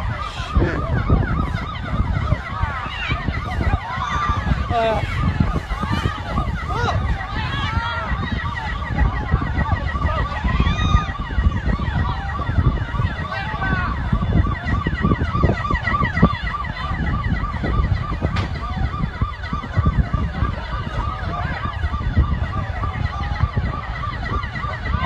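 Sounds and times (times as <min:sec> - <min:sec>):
emergency sirens yelping: 0:00.0 - 0:25.0.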